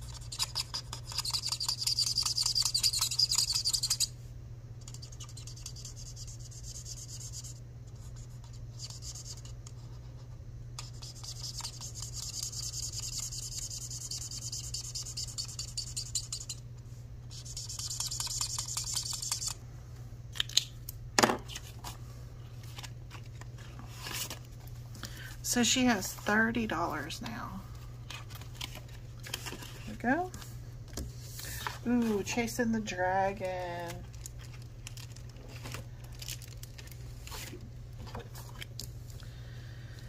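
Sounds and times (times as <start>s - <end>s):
marker scratching on paper: 0.0s - 4.1s, 4.9s - 16.6s, 17.3s - 19.6s
steady low hum: 0.0s - 40.0s.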